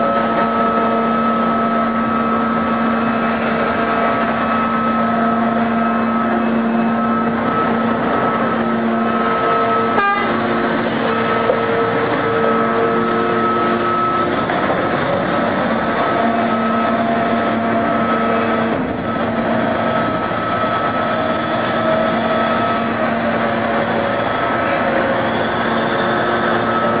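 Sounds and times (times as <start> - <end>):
loud machine noise with humming tones: 0.0 - 27.0.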